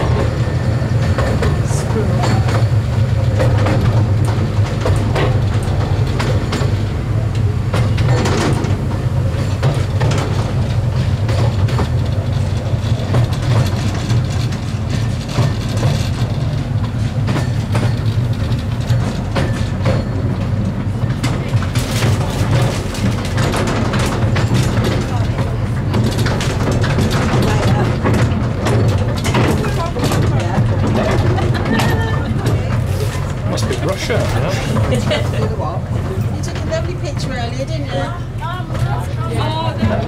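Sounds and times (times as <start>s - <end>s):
miniature train rumbling: 0.0s - 40.0s
wheels clicking over rail joints: 0.0s - 40.0s.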